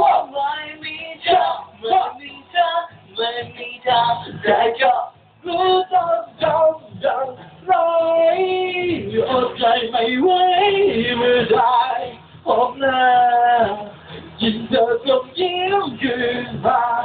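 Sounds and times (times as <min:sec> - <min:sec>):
young man singing: 0:00.0 - 0:17.0.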